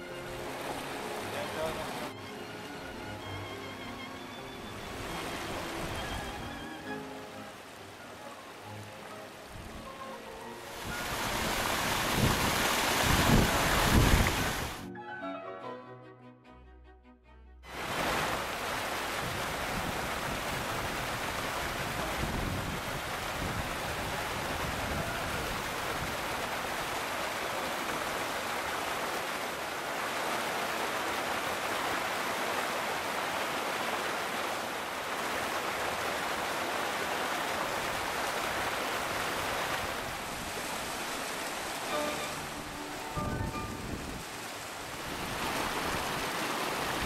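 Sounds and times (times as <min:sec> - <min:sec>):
stream rushing over rocks: 0:00.0 - 0:14.8, 0:17.7 - 0:47.0
wind rumble on microphone: 0:10.8 - 0:14.8, 0:19.1 - 0:26.8, 0:43.1 - 0:47.0.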